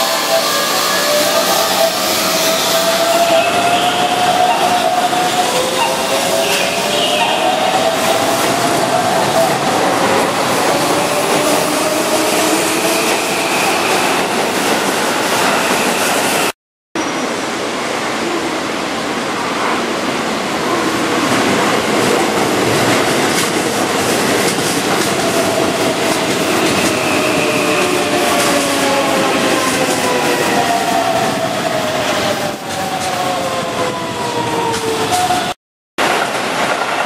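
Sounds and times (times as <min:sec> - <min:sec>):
electric train rolling rumble: 0:00.0 - 0:16.5, 0:17.1 - 0:37.0.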